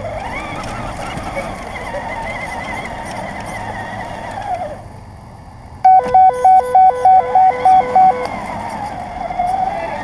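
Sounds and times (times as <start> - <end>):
rc car motor whining: 0.0 - 4.9
two-tone electronic beeping: 5.8 - 8.3.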